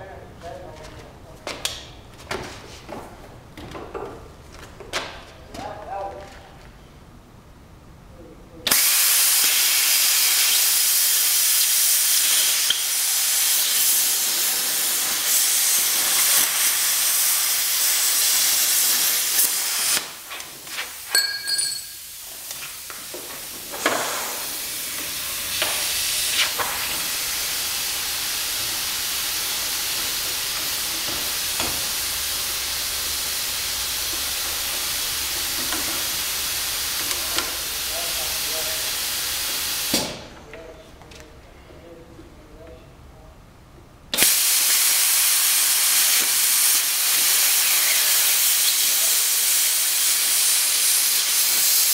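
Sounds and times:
plasma cutter hissing: 0:08.7 - 0:20.3, 0:21.9 - 0:40.2, 0:44.2 - 0:51.9
short hissing bursts: 0:08.7 - 0:21.1, 0:21.8 - 0:40.2, 0:44.2 - 0:51.9.

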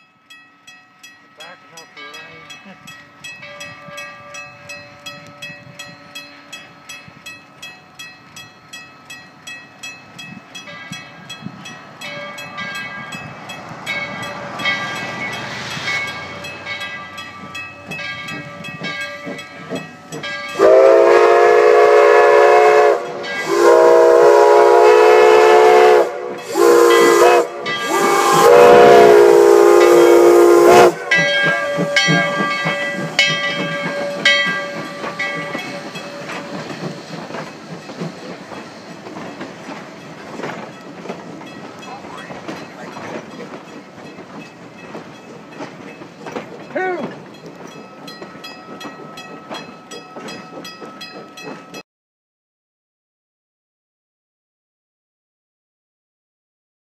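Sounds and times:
locomotive bell ringing: 0:00.0 - 0:24.1, 0:25.6 - 0:51.8
steam locomotive whistle: 0:20.5 - 0:37.0.

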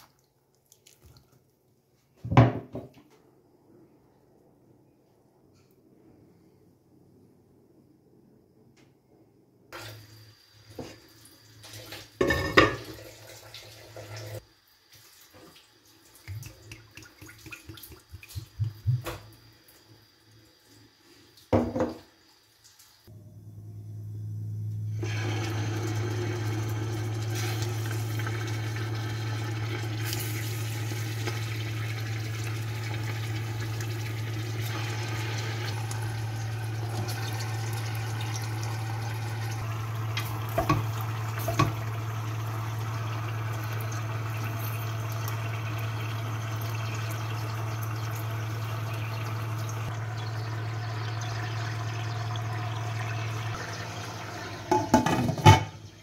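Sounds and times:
gas burner rushing with low hum: 0:23.1 - 0:55.8
pot clattering on hob grates: 0:54.7 - 0:55.8.

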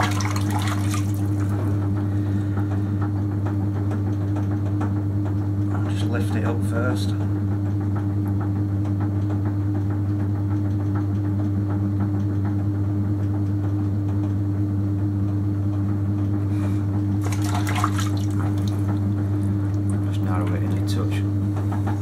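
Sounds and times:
potter's wheel humming: 0:00.0 - 0:22.0
wet hands squelching on clay: 0:17.2 - 0:18.9.

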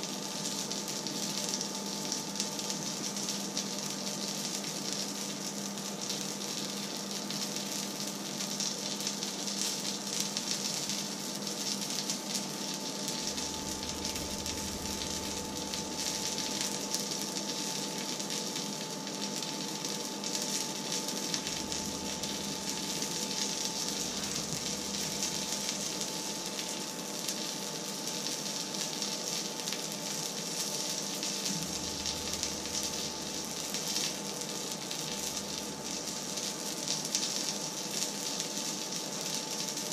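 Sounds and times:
oil sizzling in frying pan: 0:00.0 - 0:39.9
steady hum: 0:12.2 - 0:27.6, 0:30.9 - 0:36.6
low hum: 0:13.1 - 0:17.2, 0:21.3 - 0:25.8, 0:31.5 - 0:34.0.

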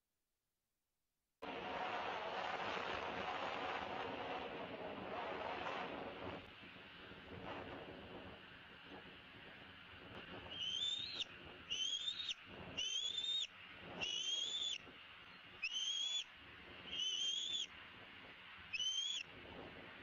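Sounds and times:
eagle whistled cries: 0:10.5 - 0:17.7, 0:18.7 - 0:19.3.

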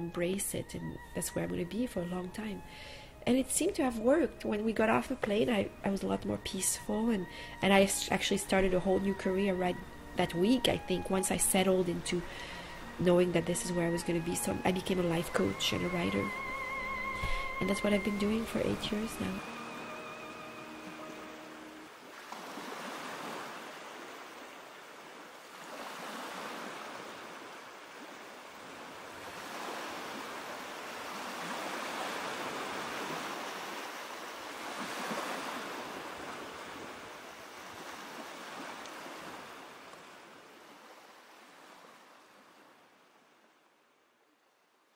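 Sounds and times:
waves washing in: 0:12.0 - 0:43.4.

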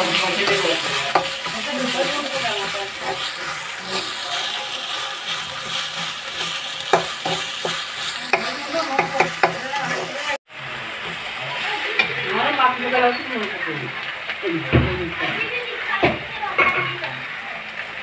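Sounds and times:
prawns sizzling in a wok: 0:00.0 - 0:18.0
spatula clicking against pan: 0:06.9 - 0:09.6.

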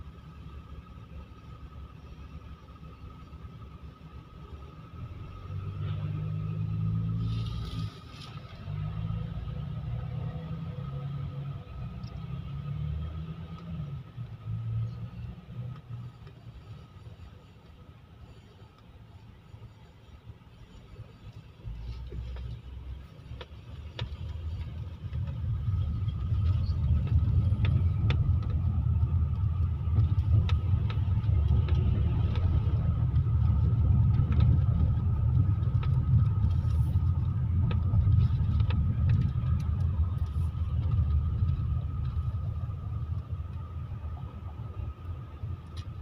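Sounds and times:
car engine and tyres rumbling: 0:00.0 - 0:46.0
faint whine: 0:14.0 - 0:46.0.

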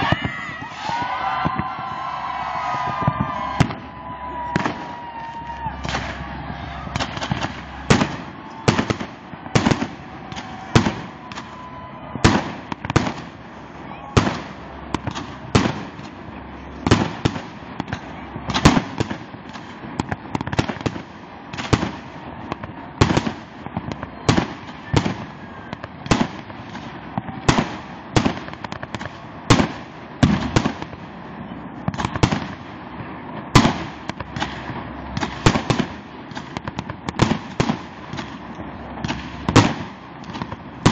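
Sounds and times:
fireworks bangs: 0:00.0 - 0:40.9
noisy background: 0:00.0 - 0:40.9.

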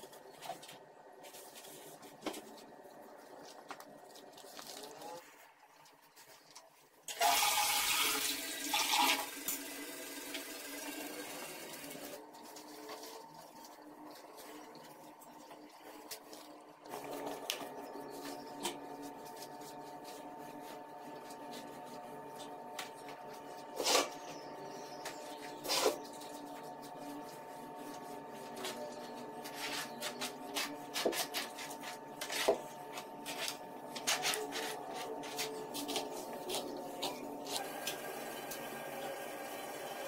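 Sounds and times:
steady hum: 0:11.8 - 0:40.0.

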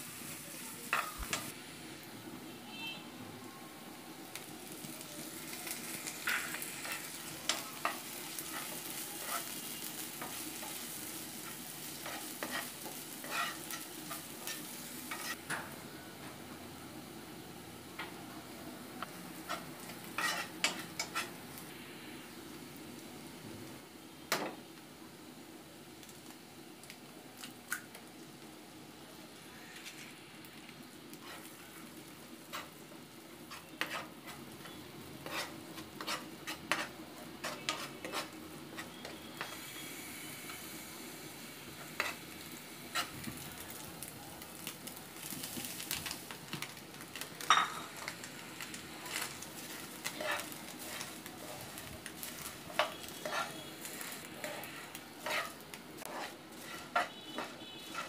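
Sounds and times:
egg sizzling in hot oil: 0:00.0 - 0:02.1, 0:04.0 - 0:15.6, 0:18.9 - 0:24.9, 0:25.5 - 0:58.0
metal spoon scraping a pan: 0:05.6 - 0:15.4, 0:19.4 - 0:21.4, 0:31.1 - 0:31.6, 0:32.5 - 0:32.8, 0:33.5 - 0:39.8, 0:41.8 - 0:42.3, 0:42.9 - 0:43.1, 0:49.0 - 0:58.0.

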